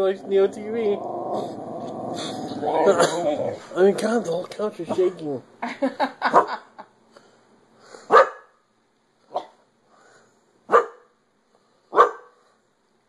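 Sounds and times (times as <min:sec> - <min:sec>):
dog barking: 0:06.3 - 0:06.6, 0:08.1 - 0:08.6, 0:09.3 - 0:09.6, 0:10.7 - 0:11.1, 0:11.9 - 0:12.4.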